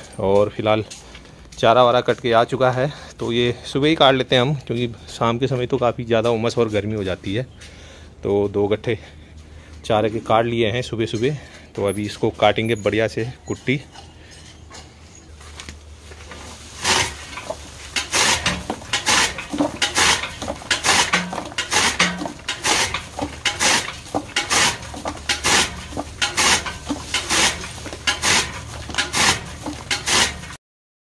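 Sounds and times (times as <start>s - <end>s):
chaff cutter chopping fodder: 16.3s - 30.6s.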